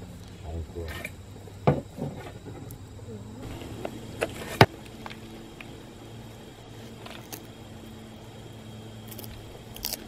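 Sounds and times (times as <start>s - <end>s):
steady low hum: 0.0s - 10.0s
twigs clicking and rustling: 6.8s - 7.6s, 9.0s - 10.0s.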